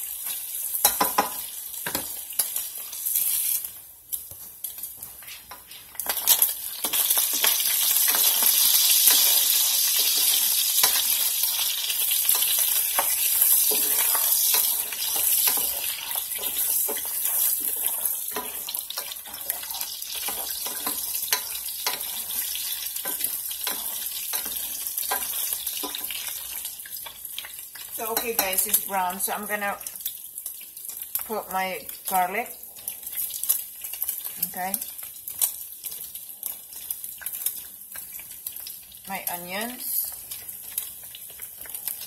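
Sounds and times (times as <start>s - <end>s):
pork sizzling in a pan: 0.0s - 42.0s
spatula scraping and tapping pan: 0.2s - 28.8s.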